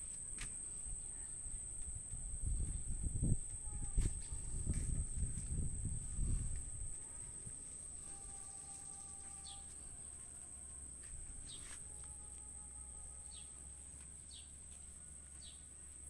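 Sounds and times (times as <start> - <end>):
insects trilling: 0.0 - 16.0
bird chirping: 8.1 - 10.1.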